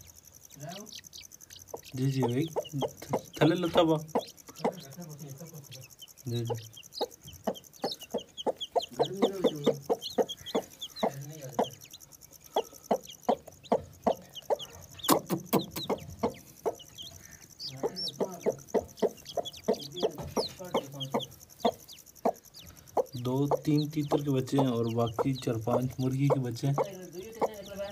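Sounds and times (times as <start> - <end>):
chicks peeping: 0.0 - 27.9
hen clucking: 0.0 - 27.9
sharp clicks: 15.0 - 17.4.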